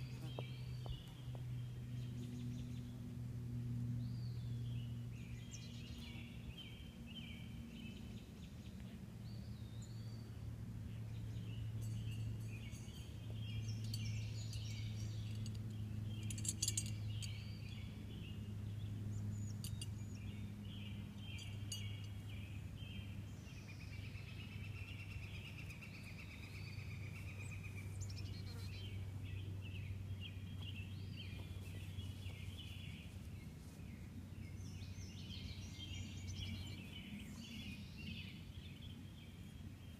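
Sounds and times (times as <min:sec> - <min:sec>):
steady low hum: 0:00.0 - 0:39.9
birds chirping and singing: 0:10.9 - 0:39.9.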